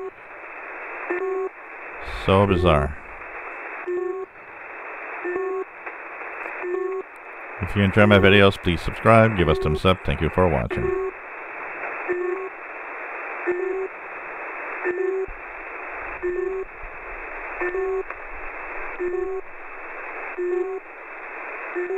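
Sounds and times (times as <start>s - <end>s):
radio static: 0.0s - 21.9s
two-tone radio beep: 9.1s - 11.2s, 16.2s - 16.7s, 17.6s - 18.1s, 19.0s - 19.4s, 20.4s - 20.8s.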